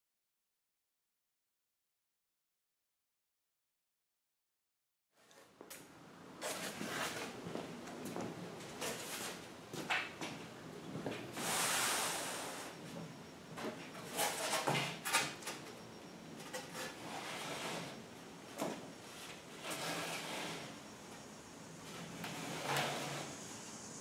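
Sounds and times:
boards scraping on tabletop: 6.4s - 7.4s, 13.9s - 15.4s, 16.4s - 18.0s, 18.6s - 20.9s, 21.9s - 23.4s
long sliding scrape: 11.4s - 12.8s, 16.7s - 18.0s, 19.0s - 21.2s, 21.8s - 24.0s.

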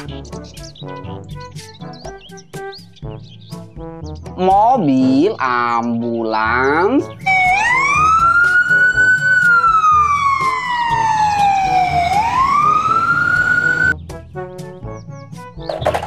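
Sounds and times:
background music with beat: 0.0s - 5.3s, 7.0s - 16.0s
ambulance siren wailing: 7.2s - 14.0s.

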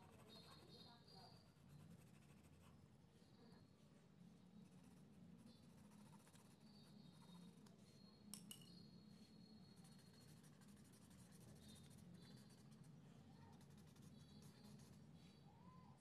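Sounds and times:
pencil scratching on paper: 0.0s - 2.8s, 4.6s - 7.6s, 9.7s - 15.1s
low background hum: 0.0s - 16.0s.

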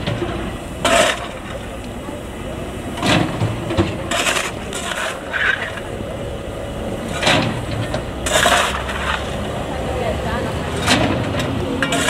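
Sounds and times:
shovelling coal: 0.0s - 1.9s, 2.9s - 6.0s, 7.0s - 9.7s, 10.3s - 12.0s
low steady rumble: 0.0s - 12.0s.

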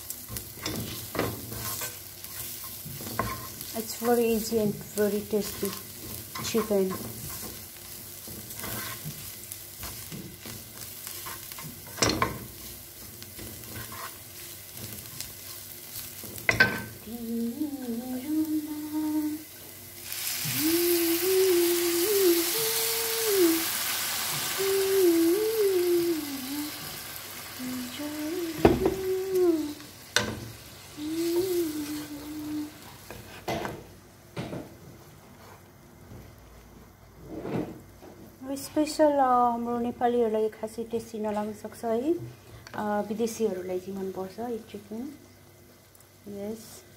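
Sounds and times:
water hissing in hot pan: 0.0s - 33.5s
onions sizzling in a pan: 0.0s - 46.9s
person humming: 17.0s - 19.4s, 20.4s - 23.7s, 24.4s - 27.0s, 27.6s - 29.9s, 31.0s - 32.9s.

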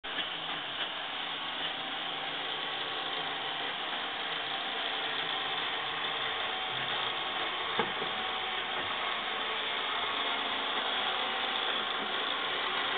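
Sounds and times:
robot vacuum whirring: 0.4s - 12.9s
vacuum knocking chair leg: 7.8s - 8.2s.

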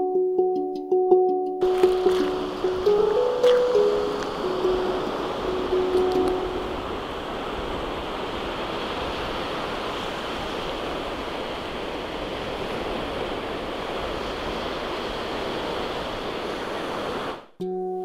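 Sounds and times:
waves washing onto beach: 1.6s - 17.5s.

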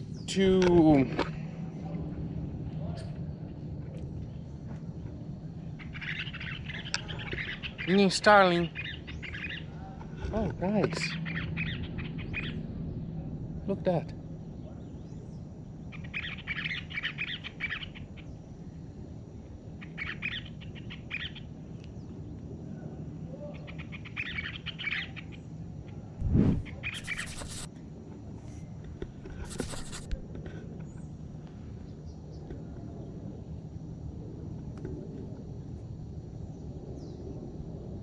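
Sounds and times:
steady low hum: 0.0s - 23.4s, 25.3s - 38.0s
birds chirping twitters: 5.7s - 9.9s, 10.8s - 12.6s, 14.9s - 18.6s, 19.8s - 22.2s, 23.6s - 25.5s, 26.7s - 27.7s.

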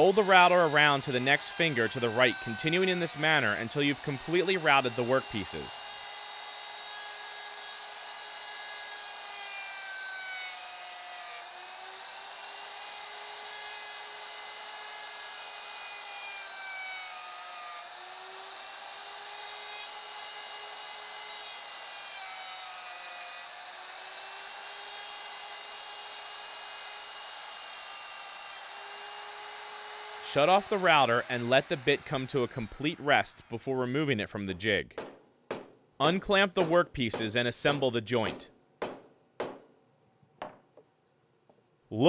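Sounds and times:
router whining: 0.0s - 33.6s.

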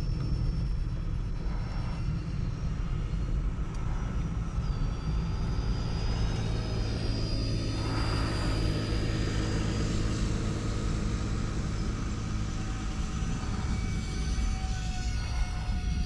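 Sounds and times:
model jet fans whining: 0.0s - 16.0s
steady low rumble: 0.0s - 16.0s.

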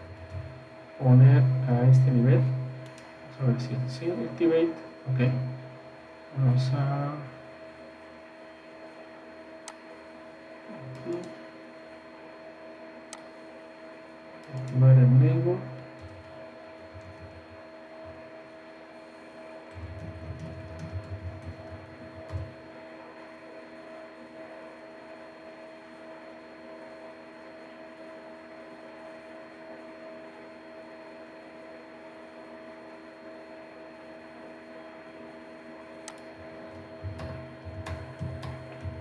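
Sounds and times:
electrical hum with hiss: 0.0s - 39.0s
faint clicks: 36.0s - 36.3s.

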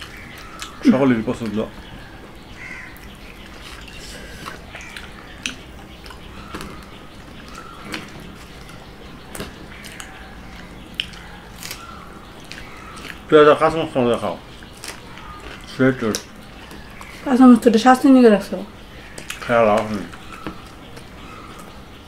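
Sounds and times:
chewing: 0.0s - 17.3s, 18.8s - 21.9s
wet clicks and smacks: 2.9s - 13.3s, 14.5s - 17.2s, 19.0s - 21.8s
fingers tearing bread: 3.6s - 13.3s, 14.6s - 17.2s.

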